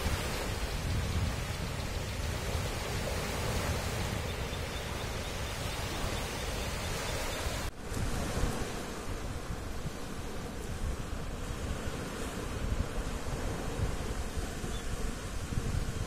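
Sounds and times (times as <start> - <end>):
surf: 0.0 - 16.0
wind: 0.0 - 16.0
wind rumble on microphone: 0.0 - 16.0.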